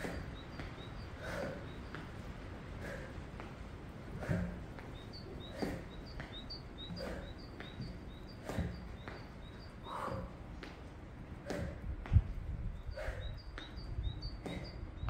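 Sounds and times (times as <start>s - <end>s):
small bird chirping: 0.0s - 2.2s, 4.3s - 10.4s, 12.7s - 15.0s
footsteps on wooden box: 3.4s - 15.0s.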